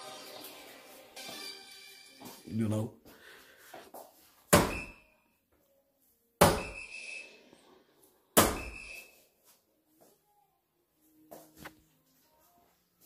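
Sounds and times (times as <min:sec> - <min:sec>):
darts thudding into dartboard: 0:04.5 - 0:05.0, 0:06.4 - 0:06.8, 0:08.4 - 0:08.9
short electronic beep: 0:06.6 - 0:07.4, 0:08.6 - 0:09.2.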